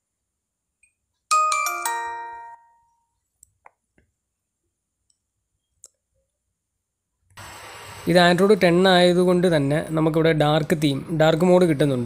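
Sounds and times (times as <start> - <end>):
bright bell chime: 1.3 - 3.2.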